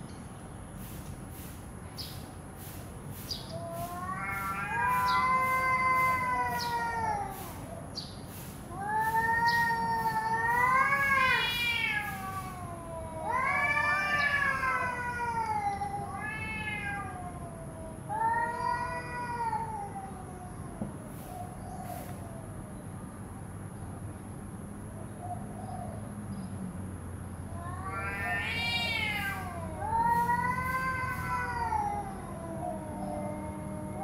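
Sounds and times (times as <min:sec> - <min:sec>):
cats yowling: 0:03.5 - 0:07.9, 0:08.6 - 0:22.5, 0:27.4 - 0:34.0.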